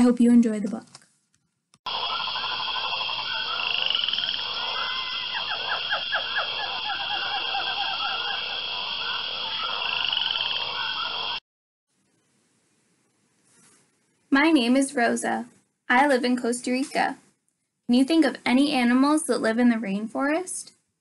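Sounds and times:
frogs calling: 0:01.9 - 0:11.4.

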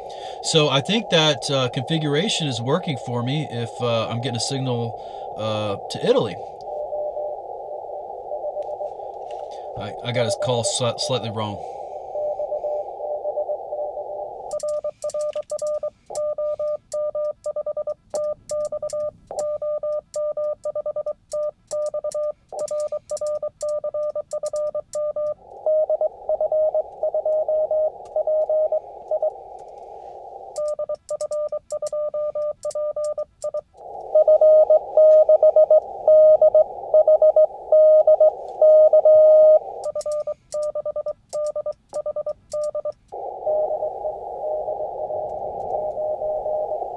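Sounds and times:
radio hiss: 0:00.0 - 0:15.0, 0:25.3 - 0:30.6, 0:33.7 - 0:40.6, 0:43.0 - 0:46.9
morse code over radio receiver: 0:00.1 - 0:46.9
morse code sidetone: 0:00.2 - 0:46.9.

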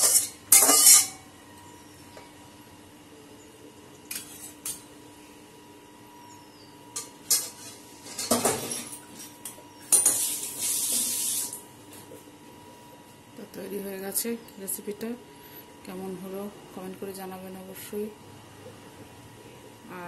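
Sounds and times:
metal utensils clinking on cookware: 0:00.0 - 0:01.2, 0:07.0 - 0:11.5.

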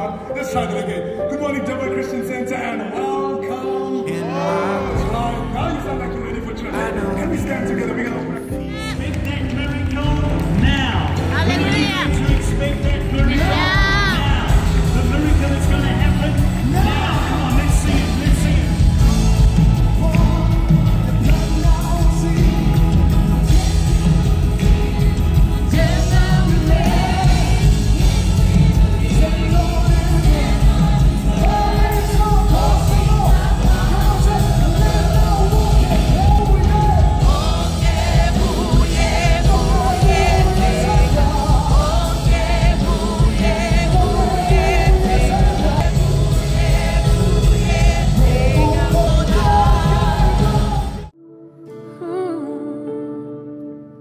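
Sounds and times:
lead singer: 0:00.0 - 0:54.0
backing vocalists: 0:02.7 - 0:51.1
drums: 0:08.7 - 0:51.1.

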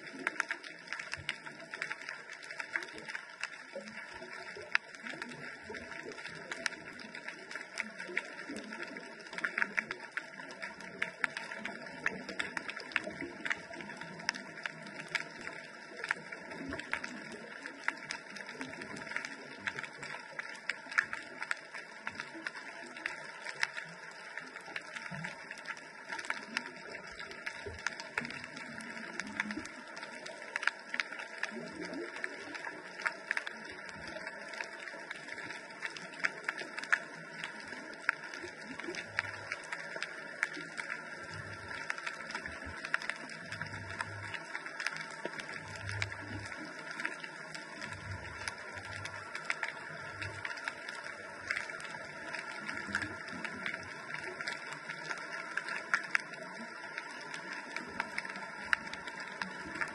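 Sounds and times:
muffled underwater crackling: 0:00.0 - 0:59.9.

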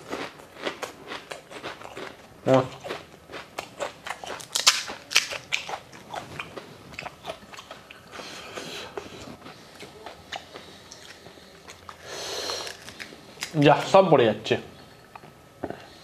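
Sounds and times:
crunching crisp shells: 0:00.0 - 0:07.4, 0:11.9 - 0:13.6.

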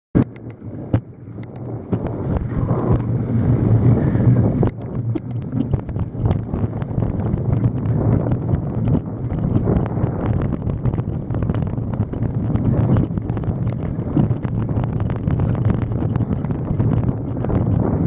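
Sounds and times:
bike clicks and knocks: 0:00.2 - 0:02.5, 0:04.7 - 0:14.5
wind buffeting microphone: 0:00.2 - 0:18.0.

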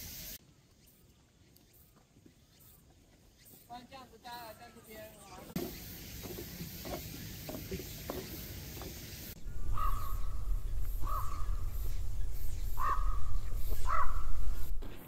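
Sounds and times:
steady high hiss: 0:00.0 - 0:02.0, 0:03.4 - 0:15.0
low rumble: 0:09.4 - 0:15.0
crow cawing: 0:09.5 - 0:11.9, 0:12.7 - 0:14.5.

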